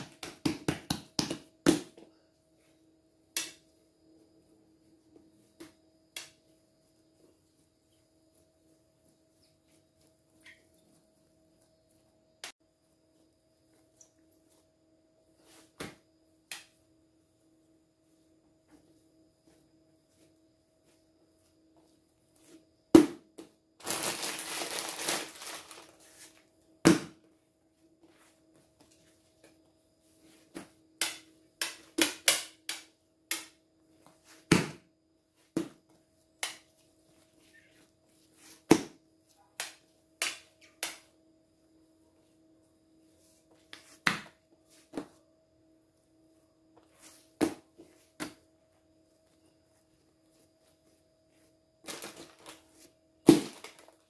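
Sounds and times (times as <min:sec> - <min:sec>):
dough thumping on tabletop: 0:00.0 - 0:02.0, 0:26.8 - 0:27.2, 0:34.4 - 0:34.9
crinkling rustle: 0:23.8 - 0:26.3.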